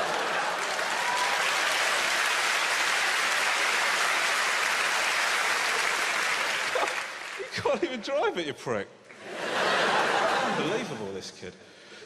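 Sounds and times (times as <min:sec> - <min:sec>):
audience applauding: 0:00.0 - 0:07.9
audience laughing: 0:09.1 - 0:11.1.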